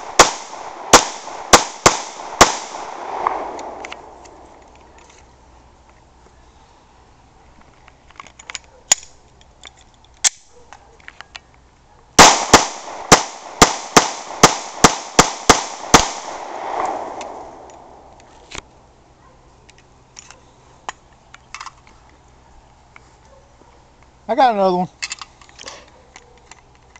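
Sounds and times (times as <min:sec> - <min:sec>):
rapid pistol shots: 0:00.0 - 0:04.1, 0:12.2 - 0:17.9
gunshot echo off trees: 0:00.0 - 0:04.4, 0:12.2 - 0:18.1
metallic pistol handling clicks: 0:08.1 - 0:11.6, 0:16.8 - 0:18.6.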